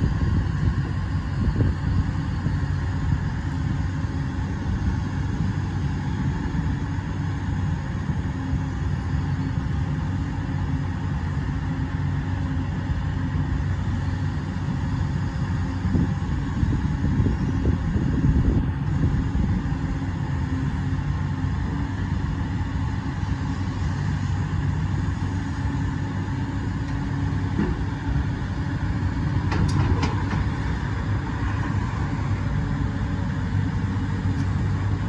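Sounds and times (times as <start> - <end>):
excavator diesel engine running: 0.0 - 35.0
hydraulic boom working: 29.3 - 31.8.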